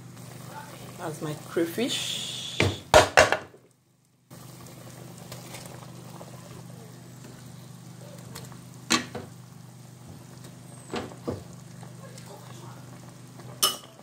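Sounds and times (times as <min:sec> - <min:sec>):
soup bubbling in pot: 0:00.0 - 0:14.0
knock against pot: 0:02.6 - 0:03.5.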